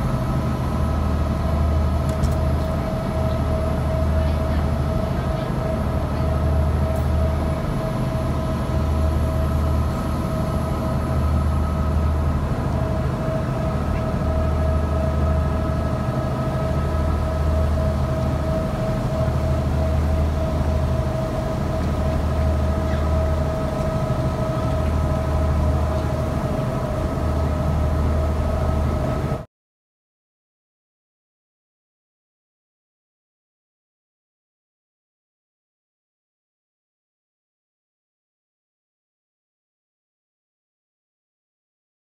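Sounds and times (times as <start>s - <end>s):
ship engine humming: 0.0s - 29.4s.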